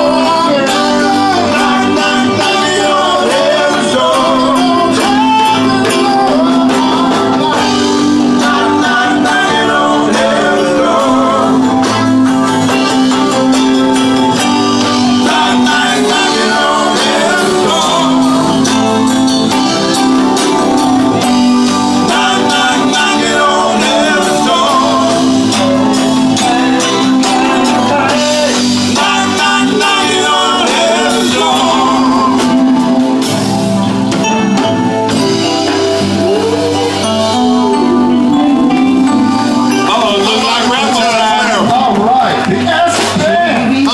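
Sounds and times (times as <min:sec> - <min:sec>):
lead vocal singing: 0:00.0 - 0:33.8, 0:35.1 - 0:43.9
live rock band playing: 0:00.0 - 0:43.9.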